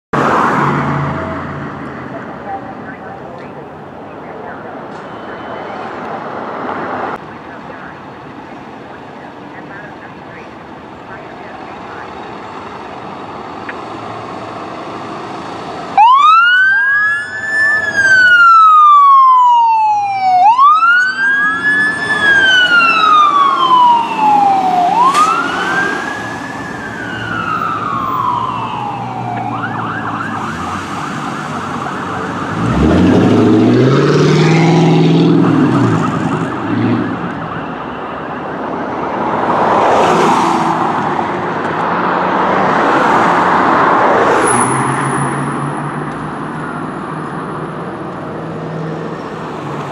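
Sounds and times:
fire engine siren wailing: 0:15.8 - 0:40.4
siren yelp: 0:16.0 - 0:33.2, 0:35.2 - 0:40.2.

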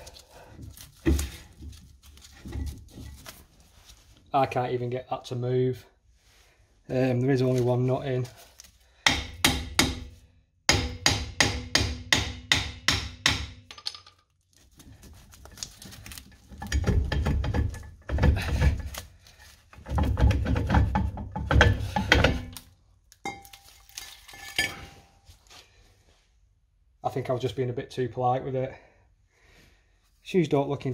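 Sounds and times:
dull knocking and scraping: 0:00.5 - 0:03.6, 0:16.3 - 0:19.0, 0:19.7 - 0:22.5
hammer striking metal drum: 0:10.7 - 0:13.8.

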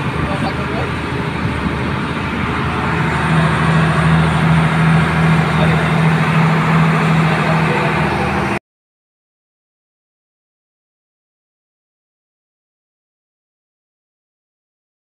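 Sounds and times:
boat engine droning: 0:00.0 - 0:08.6
wind and water rushing: 0:00.0 - 0:08.6.

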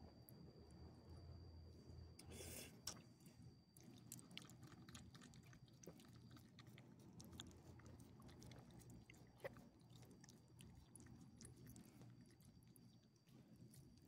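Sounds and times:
dog chewing and licking: 0:03.8 - 0:14.0.

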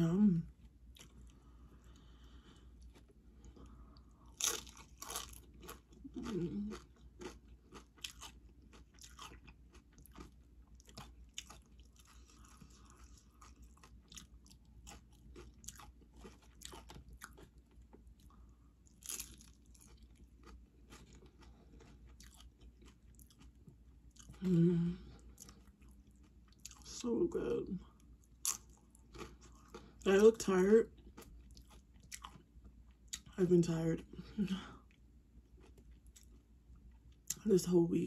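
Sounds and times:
person chewing crunchy chips: 0:00.9 - 0:24.6, 0:25.2 - 0:27.0, 0:28.0 - 0:33.4, 0:34.8 - 0:37.4
person humming: 0:24.4 - 0:25.1.

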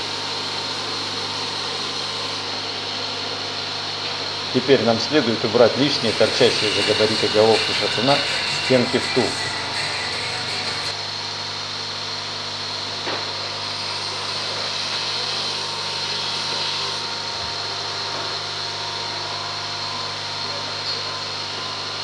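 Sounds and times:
machine tool motor humming: 0:05.7 - 0:11.4.

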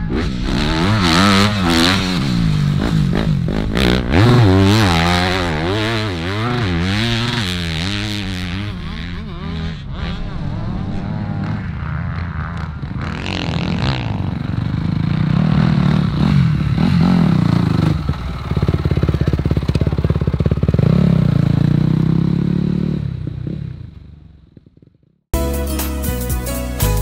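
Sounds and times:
motocross bike engine revving: 0:00.0 - 0:23.9.

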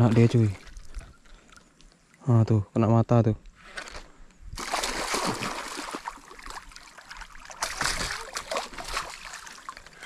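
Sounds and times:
water splashing: 0:04.6 - 0:10.0.

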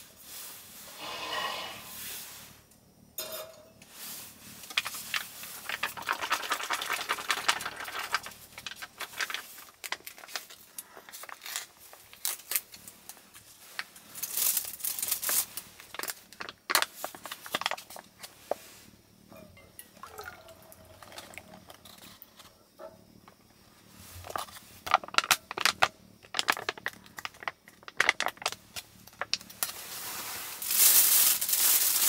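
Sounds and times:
plastic packet crinkling: 0:04.6 - 0:18.0, 0:24.2 - 0:29.8, 0:30.5 - 0:32.0
plastic packet tearing: 0:04.8 - 0:12.8, 0:24.3 - 0:28.6.

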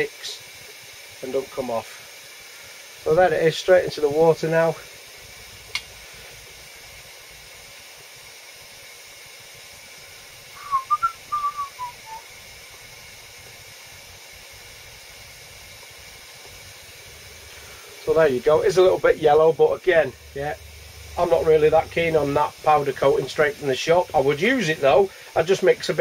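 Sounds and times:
faint hiss: 0:00.0 - 0:26.0
person whistling: 0:10.6 - 0:12.2.

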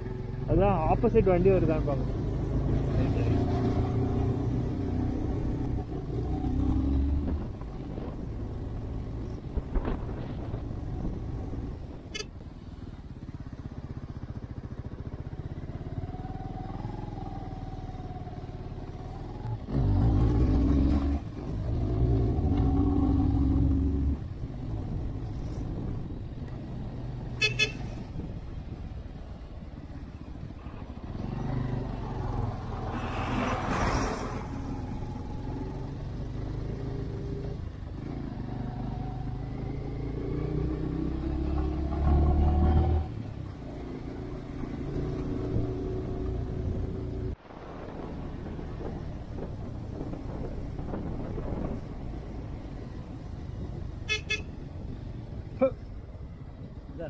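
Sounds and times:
motorcycle engine running: 0:09.6 - 0:19.2
motorcycle horn toots: 0:12.1 - 0:12.3, 0:27.4 - 0:28.0, 0:54.1 - 0:54.6
rushing noise: 0:32.6 - 0:35.2.

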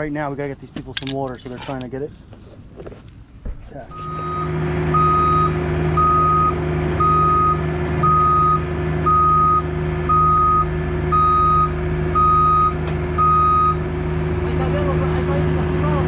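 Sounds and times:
excavator engine running: 0:03.8 - 0:16.0
backup alarm beeping: 0:03.9 - 0:13.8.

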